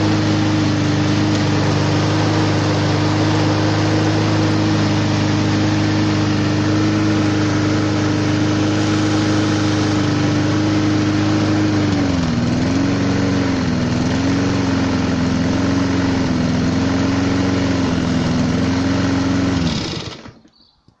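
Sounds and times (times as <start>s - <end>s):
lawn mower engine running: 0.0s - 20.6s.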